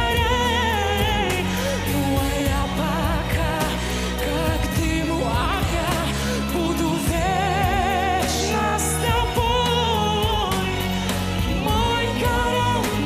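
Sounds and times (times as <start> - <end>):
band with bass and drums: 0.0 - 13.0
young man singing with vibrato: 0.0 - 13.0.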